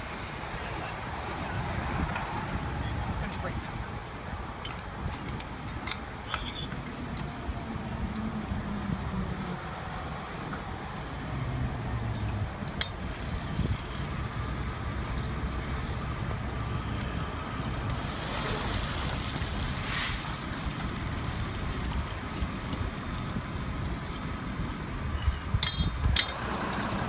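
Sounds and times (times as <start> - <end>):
water spraying hiss: 17.9 - 23.5
metal clink: 25.2 - 26.4.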